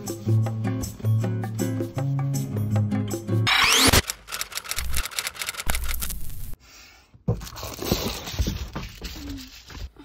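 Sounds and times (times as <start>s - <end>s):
clicks and scrapes: 3.5s - 6.6s.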